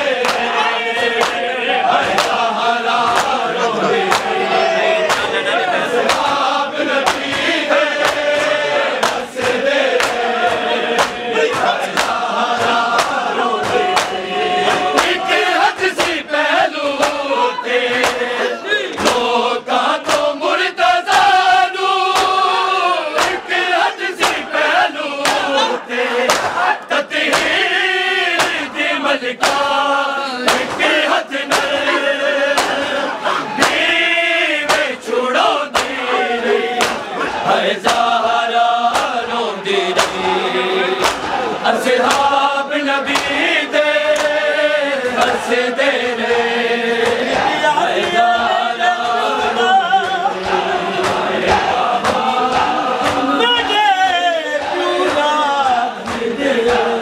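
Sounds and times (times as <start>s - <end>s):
men chanting in unison: 0.0s - 57.0s
hands slapping chest: 0.1s - 1.4s, 2.0s - 4.4s, 5.0s - 5.4s, 6.0s - 16.2s, 16.8s - 17.3s, 17.9s - 18.3s, 18.9s - 19.3s, 20.0s - 20.3s, 21.0s - 21.4s, 22.1s - 22.5s, 23.2s - 23.6s, 24.2s - 25.5s, 26.2s - 27.6s, 28.4s - 28.8s, 29.4s - 29.8s, 30.4s - 34.0s, 34.6s - 35.0s, 35.7s - 36.1s, 36.8s - 39.2s, 39.9s - 40.2s, 41.0s - 41.4s, 42.0s - 42.4s, 43.1s - 43.4s, 44.1s - 44.4s, 50.4s - 53.3s, 56.0s - 56.9s.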